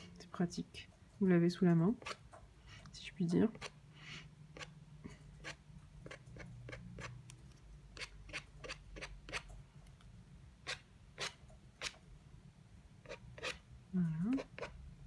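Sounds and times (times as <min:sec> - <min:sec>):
plastic card scratching paper: 0:05.4 - 0:09.5, 0:13.1 - 0:13.6.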